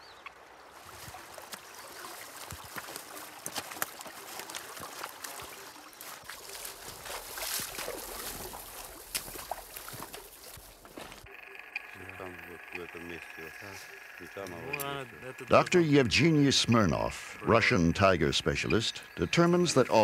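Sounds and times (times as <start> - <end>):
stream running over rocks: 0.0 - 11.3, 11.9 - 20.0
boots splashing through water: 0.7 - 11.3.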